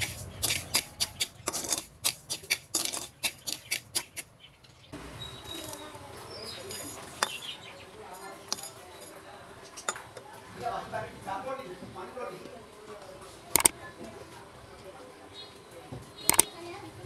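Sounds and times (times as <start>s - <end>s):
metal skimmer scraping a wok: 0.0s - 4.2s.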